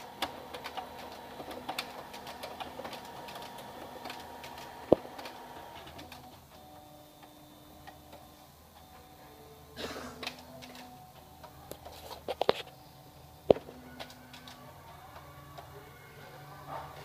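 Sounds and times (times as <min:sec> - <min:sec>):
printer clicks: 0:00.0 - 0:09.1
printer mechanism whirring: 0:00.0 - 0:17.0.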